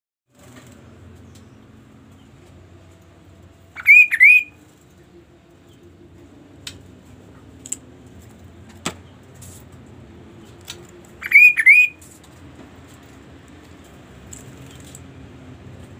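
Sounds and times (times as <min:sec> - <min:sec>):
bird whistled call: 0:03.8 - 0:04.6, 0:11.2 - 0:12.1.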